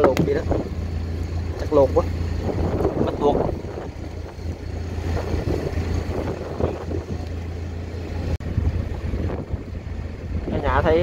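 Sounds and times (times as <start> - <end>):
boat engine droning: 0.0 - 11.0.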